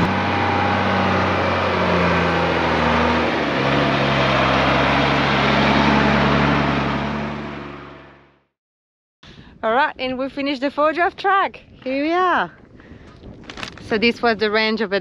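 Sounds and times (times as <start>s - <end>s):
diesel truck driving past: 0.0s - 8.6s.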